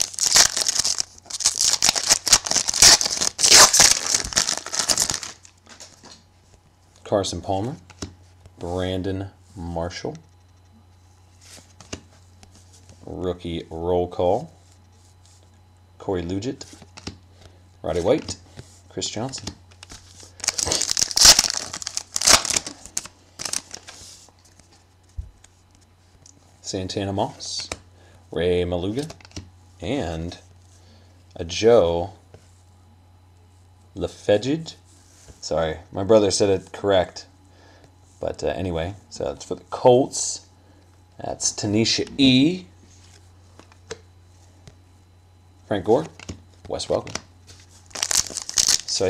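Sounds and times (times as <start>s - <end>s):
foil wrapper crinkling and tearing: 0.0s - 5.9s, 20.3s - 24.0s, 47.8s - 49.0s.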